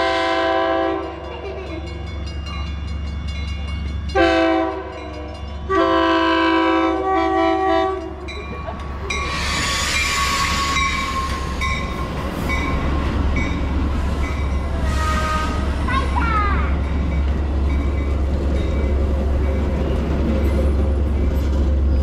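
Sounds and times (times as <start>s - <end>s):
train horn blasts: 0.0s - 1.2s, 4.1s - 8.2s, 14.7s - 15.8s
bell ringing: 1.0s - 4.2s
train wheels rushing: 1.0s - 22.0s
steady wheel squeal: 9.3s - 11.8s.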